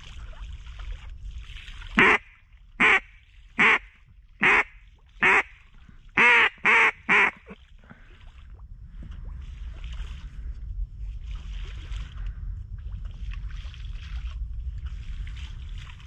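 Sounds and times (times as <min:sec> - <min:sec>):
duck call quacks: 0:02.0 - 0:02.2, 0:02.8 - 0:05.5, 0:06.2 - 0:07.6.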